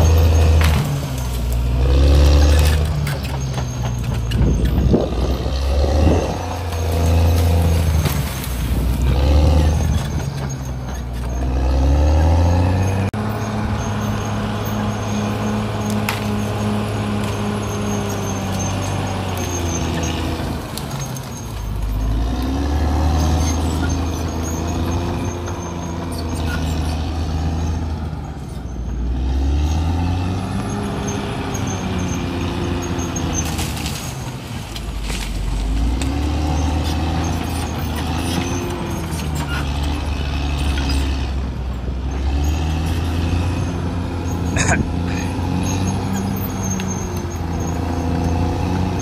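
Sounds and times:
blade pushing into trees and brush: 0:00.0 - 0:13.6, 0:14.7 - 0:27.2, 0:30.5 - 0:41.4
bulldozer diesel engine revving: 0:00.0 - 0:49.0.

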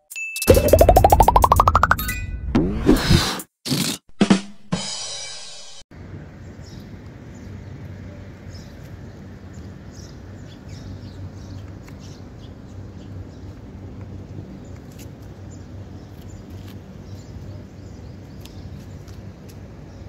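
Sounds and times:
birds chirping: 0:06.2 - 0:13.7.

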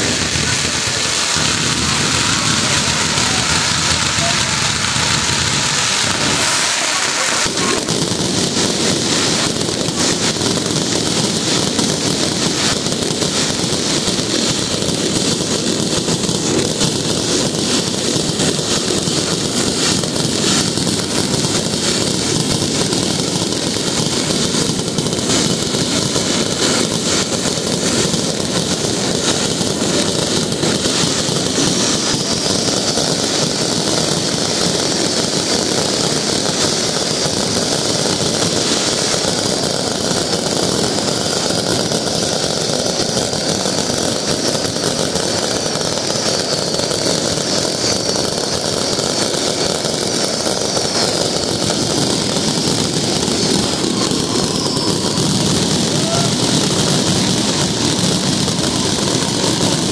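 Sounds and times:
fireworks bursting and crackling: 0:00.0 - 0:59.9.

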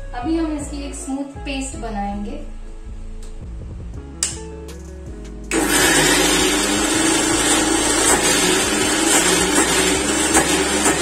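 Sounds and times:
mixer grinder motor running: 0:05.5 - 0:11.0.

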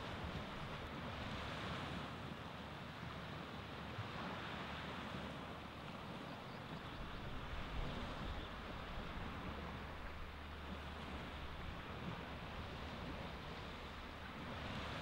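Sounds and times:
waves washing onto beach: 0:00.0 - 0:15.0.

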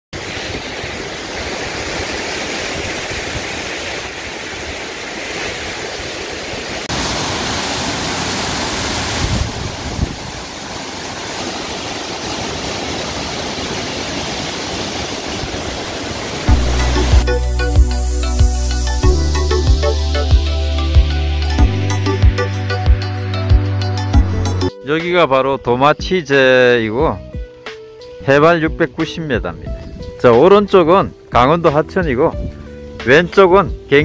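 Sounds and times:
waterfall rushing: 0:00.2 - 0:23.4.

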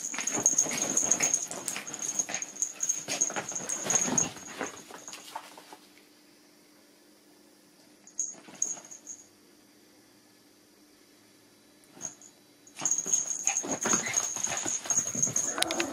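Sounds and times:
dogs scuffling on cushion: 0:00.0 - 0:05.9, 0:12.8 - 0:15.9.

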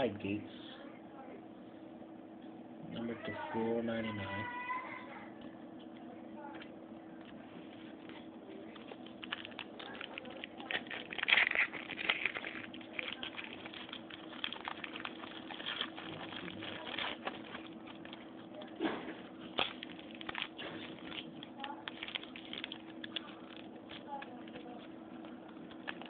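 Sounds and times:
steady low hum: 0:00.0 - 0:26.0
foil wrapper crinkling: 0:07.9 - 0:26.0.

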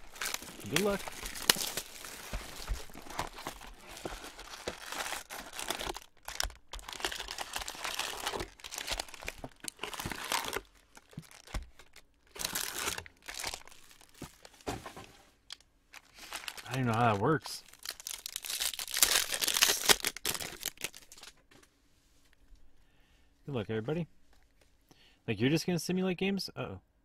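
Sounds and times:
plastic wrap crinkling and tearing: 0:00.0 - 0:14.6, 0:15.5 - 0:21.4
card packs handled: 0:00.0 - 0:21.4.

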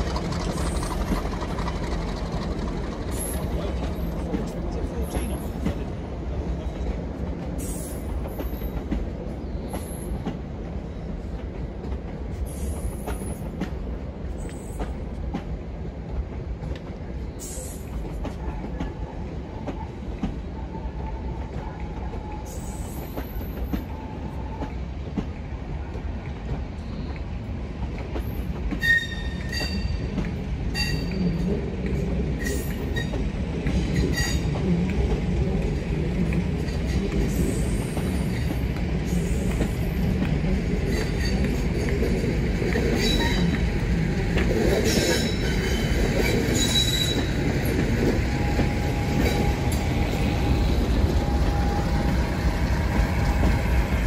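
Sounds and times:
train coaches rumbling on rails: 0:00.0 - 0:54.0
high-pitched wheel squeal: 0:28.8 - 0:30.0, 0:44.9 - 0:47.4.

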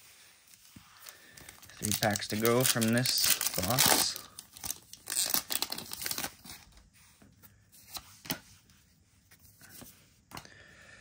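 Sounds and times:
trading cards shuffled in hands: 0:00.5 - 0:08.7
foil wrapper crinkling: 0:01.0 - 0:06.7.

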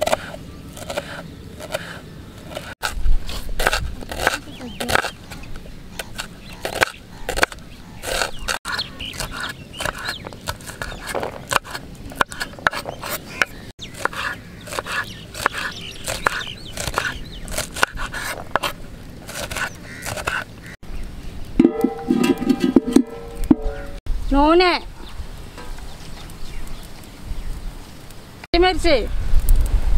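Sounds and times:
knife chopping on wooden board: 0:06.1 - 0:18.7.

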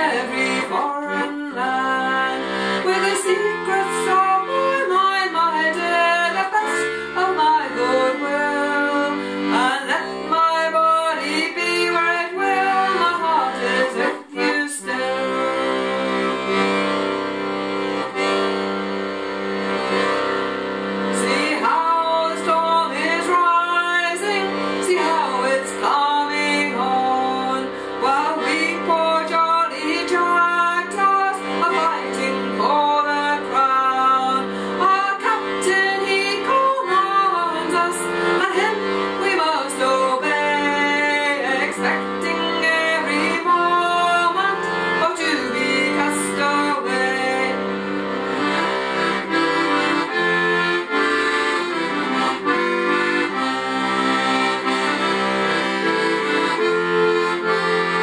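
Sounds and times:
woman singing a folk song: 0:00.0 - 0:16.9, 0:21.1 - 0:48.8
accordion chords: 0:00.0 - 0:58.0.

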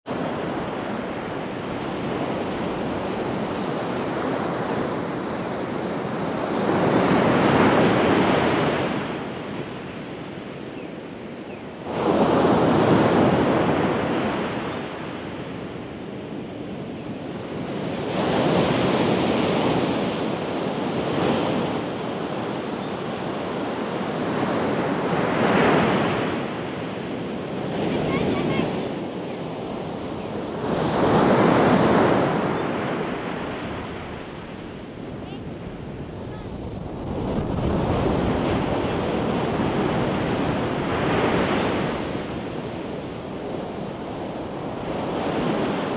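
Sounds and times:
ocean waves crashing on beach: 0:00.0 - 0:45.9.

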